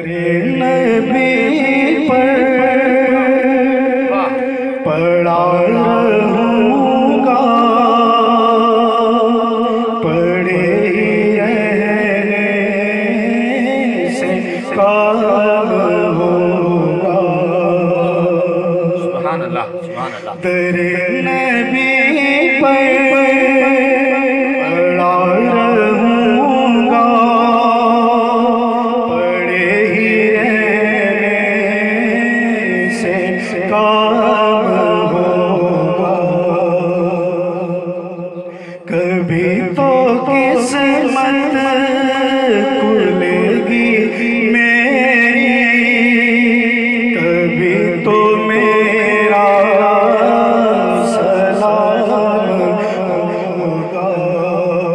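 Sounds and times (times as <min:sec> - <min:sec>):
man singing solo: 0:00.0 - 0:18.7, 0:19.9 - 0:37.8.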